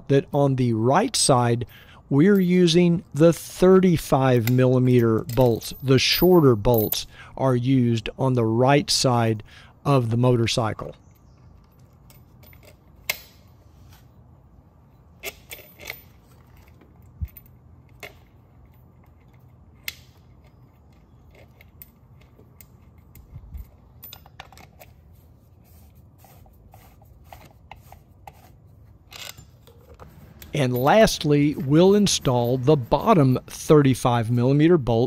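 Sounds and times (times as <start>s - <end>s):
metal parts clicking: 15.2s - 25.1s, 29.0s - 34.0s.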